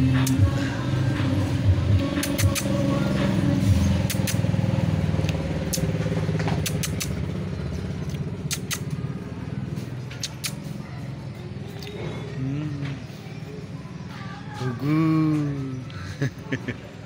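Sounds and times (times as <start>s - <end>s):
sharp clicks: 2.1s - 2.8s, 4.0s - 4.5s, 5.2s - 5.9s, 6.5s - 7.2s, 8.0s - 9.0s, 10.1s - 10.7s.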